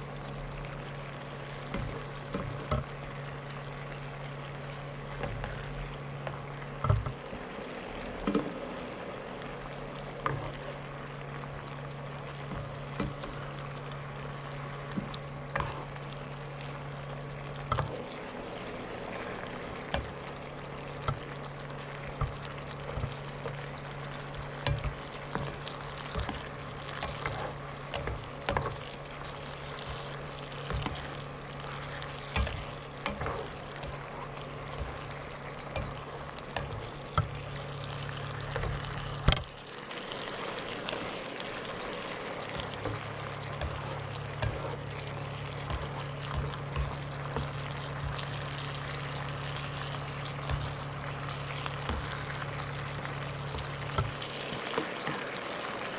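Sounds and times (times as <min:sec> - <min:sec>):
fish sizzling in a frying pan: 0:00.0 - 0:55.9
spatula tapping and scraping a pan: 0:17.6 - 0:18.0, 0:21.0 - 0:39.5, 0:42.6 - 0:52.5.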